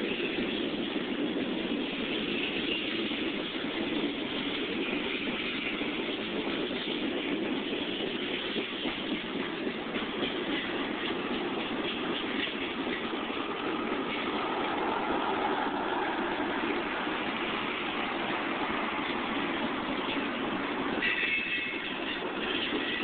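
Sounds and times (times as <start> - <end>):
train wheels rumbling on rails: 0.0 - 23.0
high squeal: 12.1 - 23.0.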